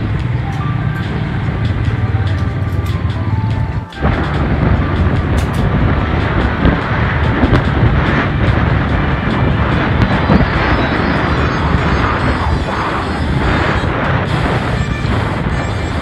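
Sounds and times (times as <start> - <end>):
background music: 0.0 - 16.0
vehicle engine moving: 0.0 - 16.0
wind rushing over microphone: 0.0 - 16.0.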